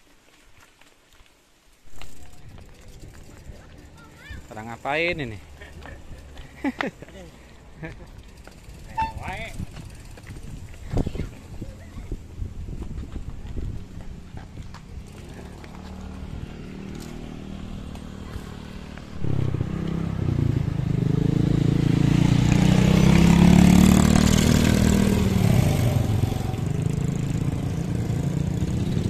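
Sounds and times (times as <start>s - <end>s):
vehicle engine running: 17.0s - 22.3s.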